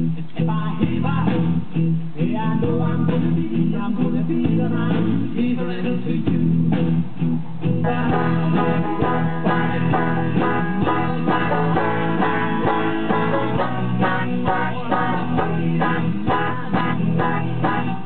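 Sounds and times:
low accompaniment: 6.3 - 18.0
banjo picking: 7.8 - 18.0.

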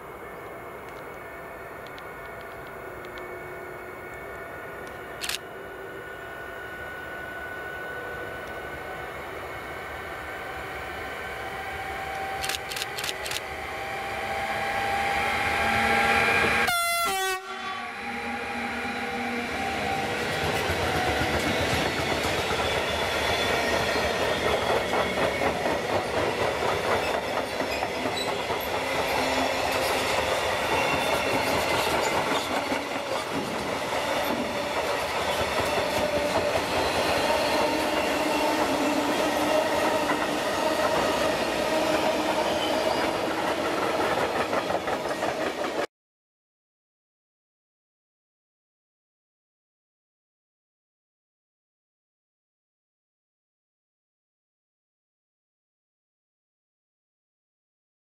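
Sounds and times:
locomotive horn chord: 15.6 - 18.4
train wheels clicking over rail joints: 20.3 - 38.8.

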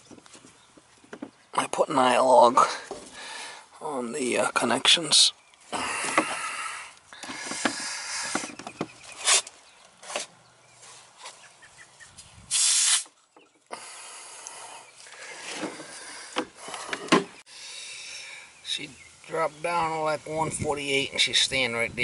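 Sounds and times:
loud blast of gas: 12.5 - 13.1.

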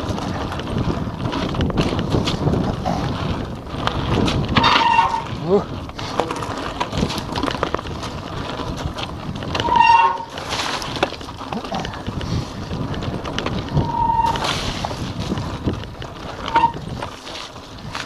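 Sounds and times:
bike rattling over rocks: 0.0 - 18.0
wind on microphone: 0.0 - 18.0
disc brakes squealing: 4.6 - 5.4, 9.6 - 10.4, 13.8 - 14.6, 16.5 - 16.8.

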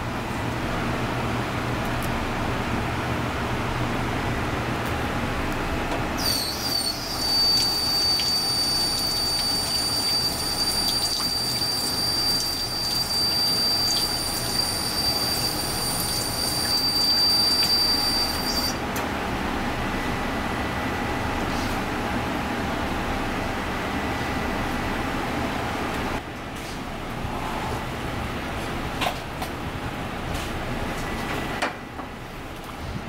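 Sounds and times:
water running into a steel sink: 6.2 - 18.7
high-pitched tap whistle: 6.2 - 18.8.

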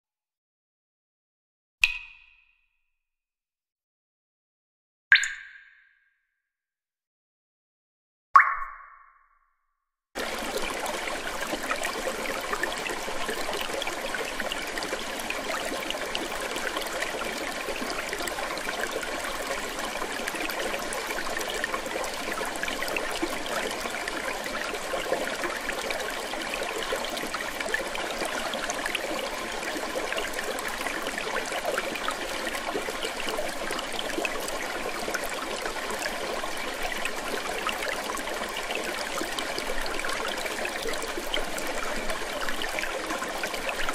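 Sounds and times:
running trickling water: 10.2 - 43.9.

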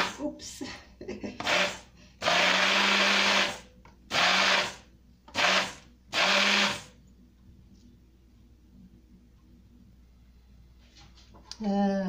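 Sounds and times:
immersion blender pulsing: 1.4 - 6.9.

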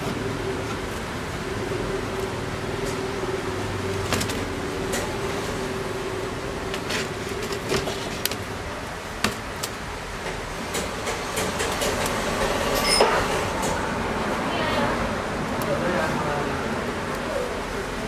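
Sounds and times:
steady background hum: 0.0 - 18.0.

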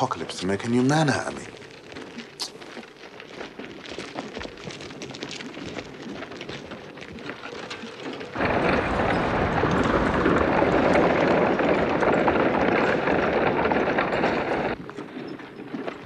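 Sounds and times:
light crackling: 0.0 - 15.1
hooves and wagon clattering: 0.0 - 16.0.

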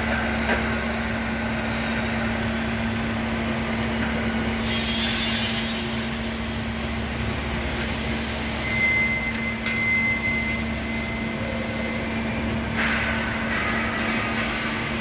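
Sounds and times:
thin high whine: 8.1 - 12.9.

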